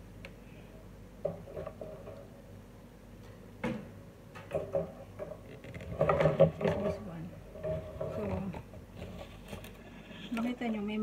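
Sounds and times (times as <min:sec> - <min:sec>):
plastic fan parts clicking and knocking: 0:01.2 - 0:02.4, 0:03.2 - 0:09.8.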